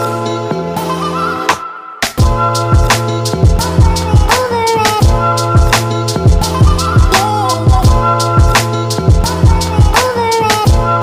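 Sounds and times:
low drum beat: 2.2s - 4.3s, 5.0s - 10.0s.

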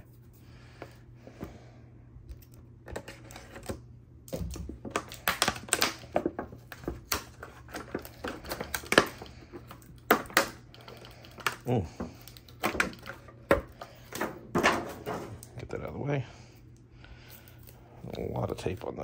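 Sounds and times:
plastic blister tray crinkling: 4.3s - 13.3s.

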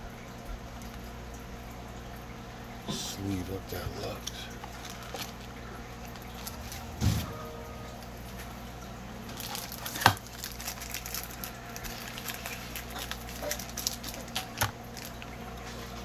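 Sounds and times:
steady low hum: 0.0s - 9.7s
plastic packaging crinkling: 4.2s - 7.0s, 9.3s - 16.0s.

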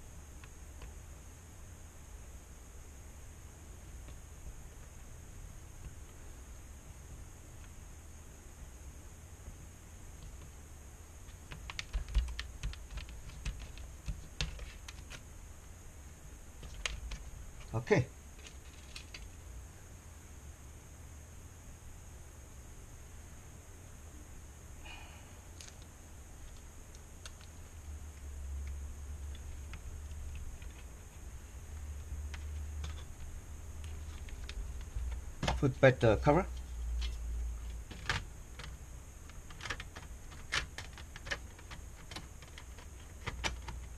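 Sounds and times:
steady low hum: 0.0s - 43.9s
hands handling wires and tape: 11.2s - 15.7s, 16.6s - 17.8s, 18.4s - 19.4s, 25.5s - 43.9s.

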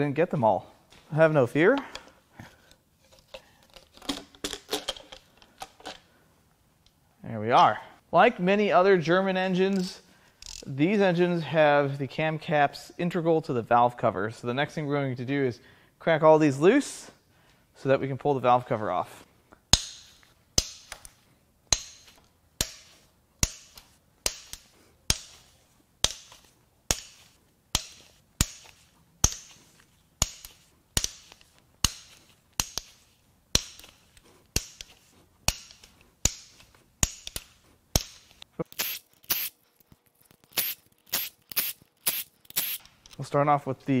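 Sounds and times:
ratchet cracking bolts loose: 26.0s - 29.6s, 30.2s - 34.9s.

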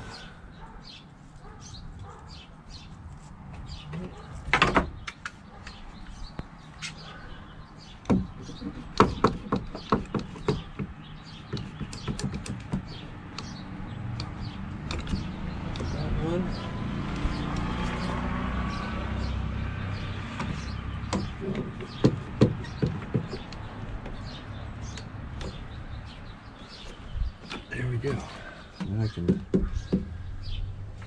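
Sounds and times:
wood knocking: 8.1s - 13.0s, 20.3s - 24.2s, 28.8s - 30.2s.

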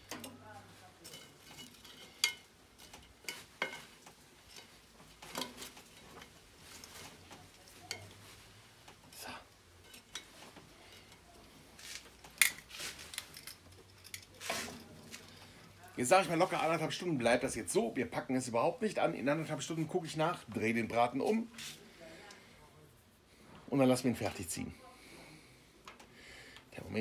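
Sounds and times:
charcoal set down on metal: 0.0s - 8.5s, 9.8s - 15.4s
metal tongs clinking: 1.0s - 6.9s.

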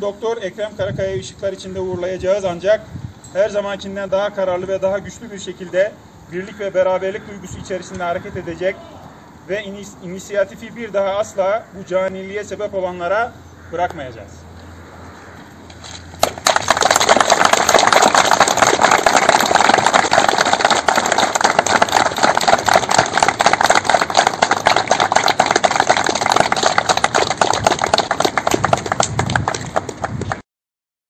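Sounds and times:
crowd applauding: 16.2s - 30.4s.

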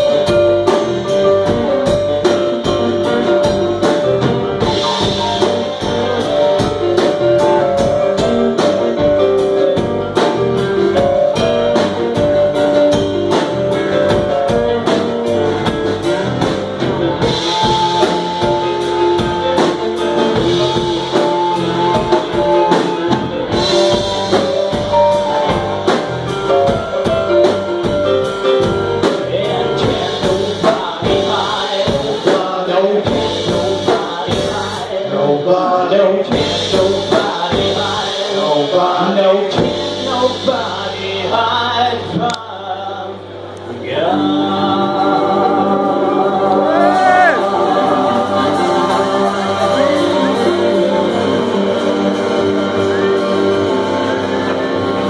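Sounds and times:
electric keyboard: 0.0s - 55.0s
man singing: 17.2s - 24.4s, 29.0s - 51.6s.

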